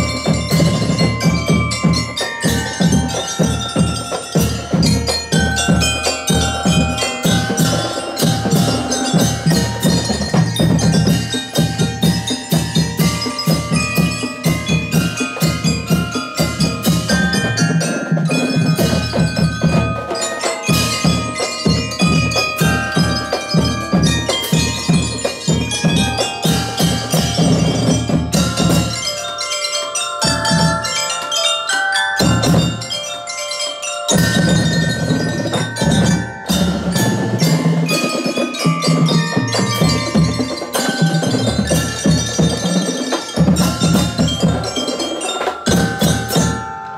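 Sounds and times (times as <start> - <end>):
snare and bass drums: 0.0 - 29.1, 34.1 - 46.6
bell lyres playing melody: 0.0 - 46.9.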